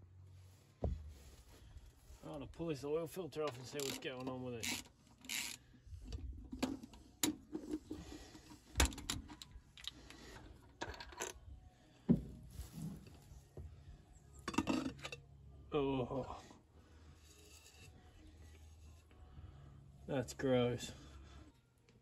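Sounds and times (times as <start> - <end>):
metal clinks and scraping: 17.2 - 18.2.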